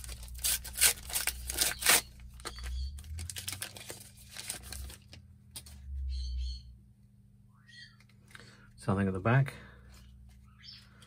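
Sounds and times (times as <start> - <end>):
card pack wrapper crinkling: 0.0 - 5.7
cards rustling: 0.0 - 5.8.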